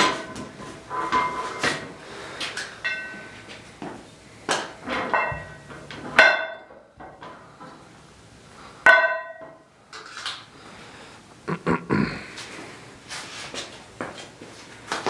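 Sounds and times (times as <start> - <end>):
horseshoes knocking and clanking: 0.0 - 7.8, 8.9 - 9.6
ringing metal-on-metal strikes: 2.8 - 3.2, 8.9 - 9.6.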